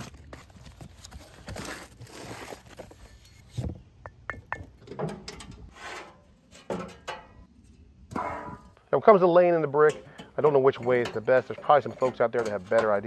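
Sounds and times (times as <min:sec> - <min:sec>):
cardboard box being opened: 0:00.0 - 0:03.0
metal door scraping open: 0:08.1 - 0:08.7.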